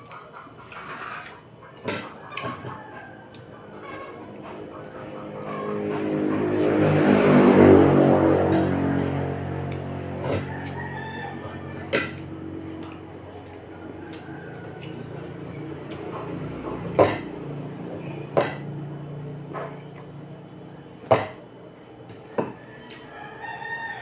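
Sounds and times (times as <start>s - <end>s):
low hum: 3.1s - 21.7s.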